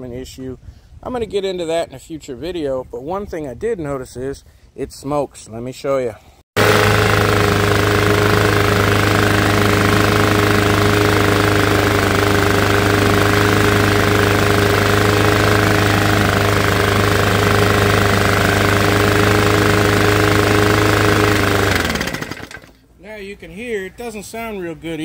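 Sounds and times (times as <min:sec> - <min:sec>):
lawn mower engine running: 0:06.6 - 0:22.9.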